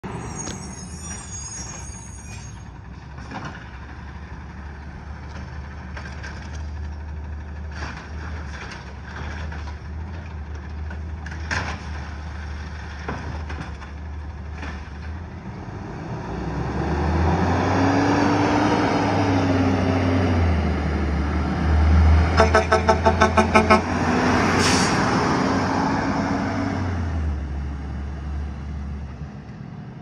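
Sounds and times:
short sharp truck sounds: 0:00.0 - 0:03.6, 0:21.9 - 0:26.7
distant garbage truck rumble: 0:00.0 - 0:30.0.

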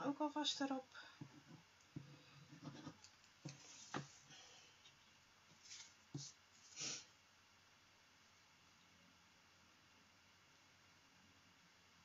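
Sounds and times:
soft scratches and light taps: 0:01.2 - 0:06.8.

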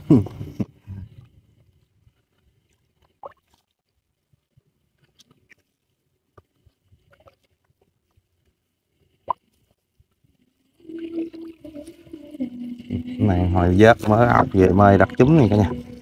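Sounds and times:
water dripping and splashing: 0:02.6 - 0:04.0
soft plops: 0:02.7 - 0:04.0.

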